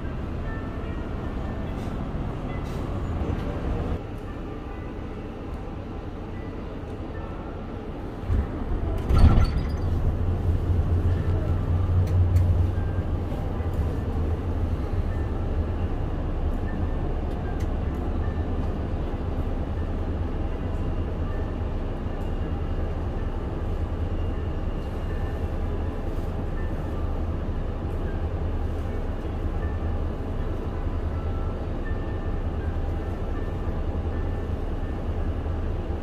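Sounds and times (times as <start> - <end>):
diesel bus engine idling: 9.9 - 36.0.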